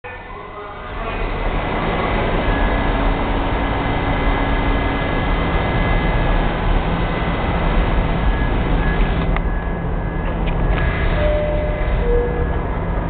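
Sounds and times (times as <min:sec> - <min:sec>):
subway train wheels rumbling: 0:00.0 - 0:13.0
faint high steady tones: 0:11.1 - 0:13.0.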